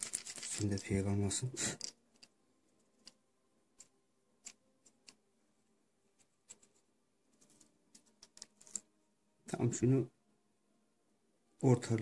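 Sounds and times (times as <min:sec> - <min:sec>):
foil tape crinkling: 0:00.0 - 0:00.9.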